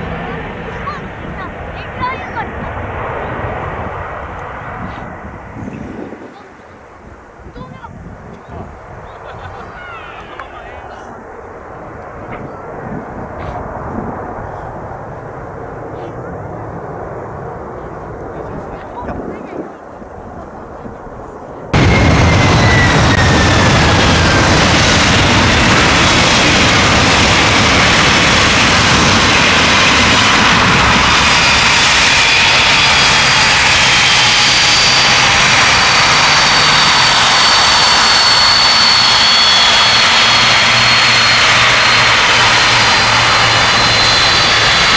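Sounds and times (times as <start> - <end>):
jet engines roaring: 0.0 - 44.9.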